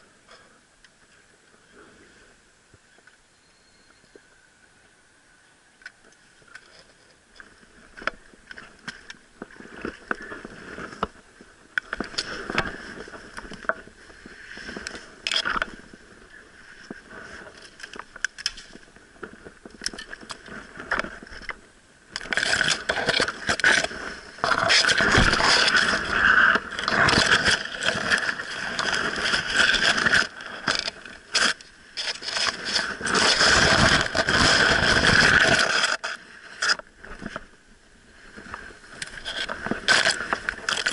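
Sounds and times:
vegetation scraping against camera: 22.3s - 37.4s, 39.0s - 40.9s.

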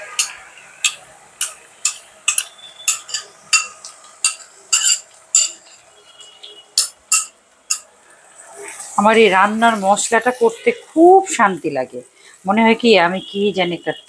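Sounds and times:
utensil tapping: 0.0s - 7.9s
utensil scraping ceramic bowl: 1.9s - 7.8s.

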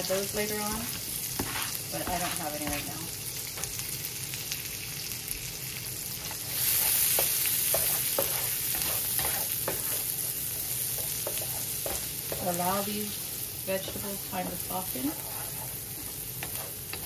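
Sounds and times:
vegetables sizzling in grease: 0.0s - 17.0s
spatula scraping a pan: 0.5s - 3.0s, 6.2s - 13.0s, 13.8s - 17.0s.

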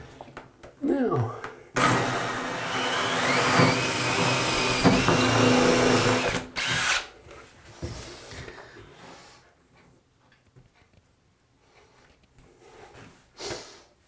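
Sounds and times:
cordless drill running: 1.8s - 7.1s.

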